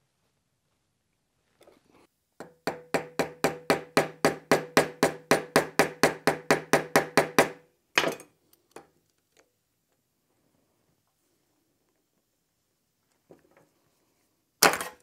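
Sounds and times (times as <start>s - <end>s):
hammer tapping on metal: 2.4s - 7.6s.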